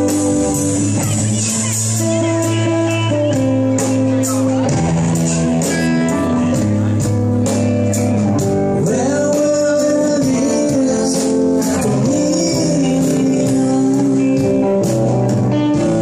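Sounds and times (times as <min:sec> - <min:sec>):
bass guitar: 0:00.0 - 0:16.0
drums with cymbals: 0:00.0 - 0:16.0
electric guitar: 0:00.0 - 0:16.0
man singing lead vocal: 0:08.6 - 0:15.2.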